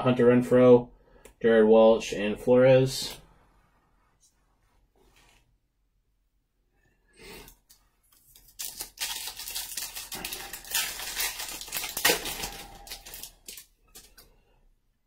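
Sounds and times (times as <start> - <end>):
foil wrapper tearing and crinkling: 8.2 - 14.2.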